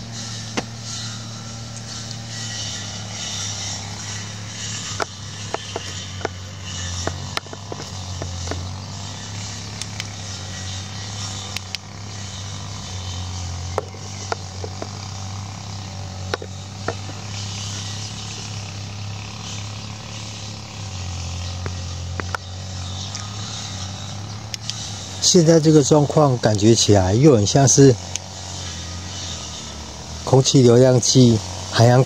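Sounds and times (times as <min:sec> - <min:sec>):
low mechanical hum: 0:00.0 - 0:32.0.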